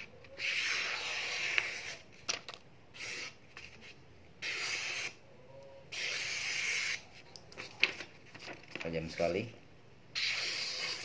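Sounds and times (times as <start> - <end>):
blade slicing paper: 0.0 - 2.0, 10.2 - 11.0.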